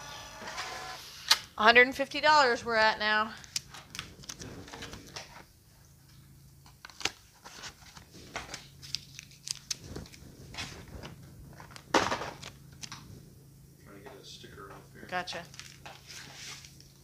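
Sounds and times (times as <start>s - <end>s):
packaging clicks and crinkles: 6.7s - 10.2s, 15.5s - 16.0s.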